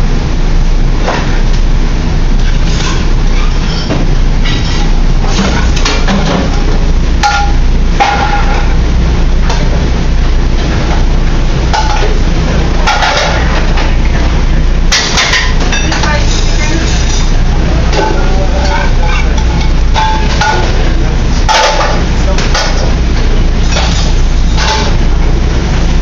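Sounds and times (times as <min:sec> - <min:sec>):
steady low rumble: 0:00.0 - 0:26.0
metal pans clanking: 0:12.8 - 0:14.0, 0:17.9 - 0:22.9, 0:23.6 - 0:25.1.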